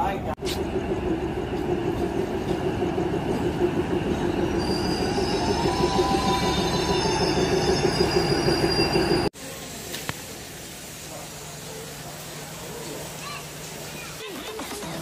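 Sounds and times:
train rumbling past: 0.0 - 9.3
wheels and brakes squealing: 4.2 - 9.3.

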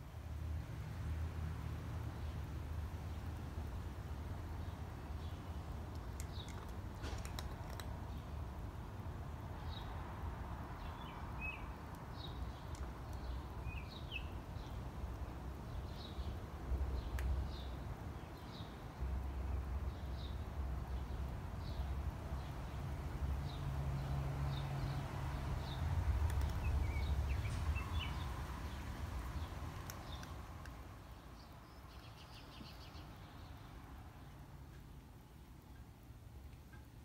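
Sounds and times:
faint clicks: 5.9 - 8.0, 29.8 - 30.8
small bird chirping: 10.8 - 14.8, 25.6 - 33.7.

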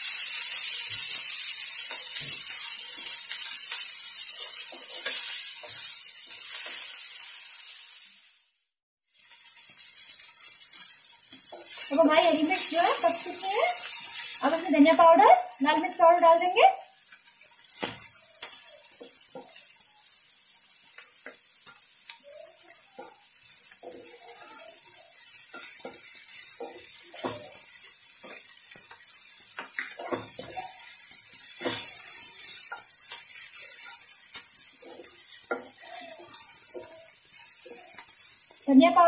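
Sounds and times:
spices sizzling in a pan: 0.0 - 39.0
spatula scraping a frying pan: 0.1 - 7.8, 20.5 - 38.6.

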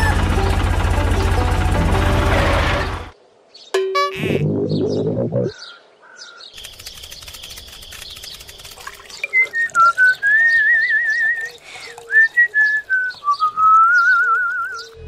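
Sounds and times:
rapid scratchy clicking with hiss: 6.6 - 9.2
person whistling a tune: 12.1 - 14.9.

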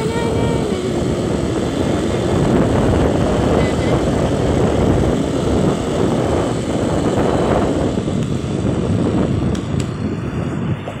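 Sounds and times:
scooter engine: 0.0 - 11.0
wind buffeting microphone: 0.0 - 11.0.

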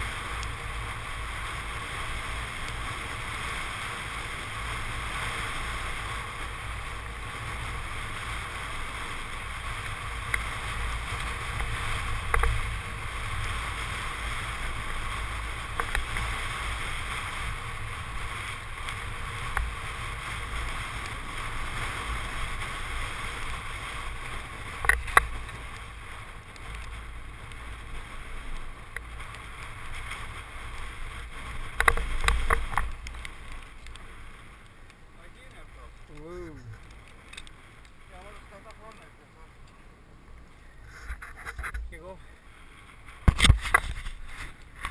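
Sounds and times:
bike tyres rolling on pavement: 0.0 - 44.9
bike clicks and knocks: 9.8 - 12.7, 15.6 - 16.4, 24.6 - 25.9, 31.6 - 34.0, 36.2 - 39.0, 43.2 - 44.9.

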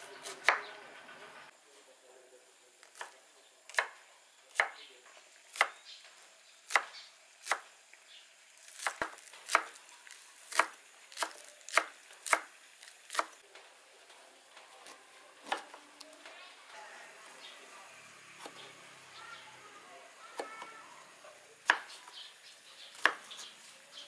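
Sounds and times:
knife chopping on wooden board: 4.6 - 4.8, 6.7 - 7.6, 8.8 - 9.8, 10.5 - 12.5, 13.1 - 13.4, 21.6 - 22.0, 23.0 - 23.5.

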